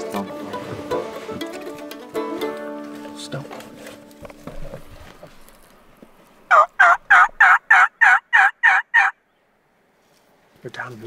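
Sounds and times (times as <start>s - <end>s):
turkey yelps: 6.5s - 9.2s.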